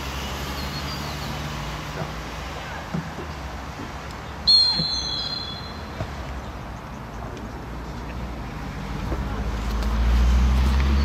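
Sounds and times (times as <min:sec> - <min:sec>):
faint outdoor background noise: 0:00.0 - 0:11.0
referee's whistle blast: 0:04.4 - 0:06.0.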